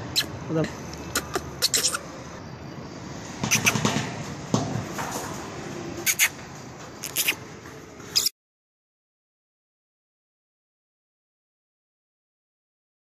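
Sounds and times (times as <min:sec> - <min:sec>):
outdoor background noise: 0:00.0 - 0:08.4.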